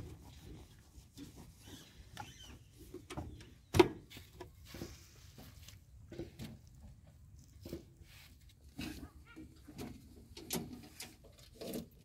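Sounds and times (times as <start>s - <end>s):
small knocks on tractor body: 3.1s - 4.6s.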